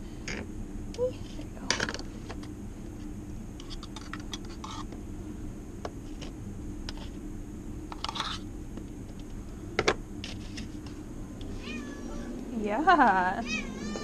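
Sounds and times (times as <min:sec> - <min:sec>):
steady low hum: 0:00.0 - 0:14.0
fork scraping food tub: 0:03.6 - 0:04.9, 0:08.0 - 0:08.4.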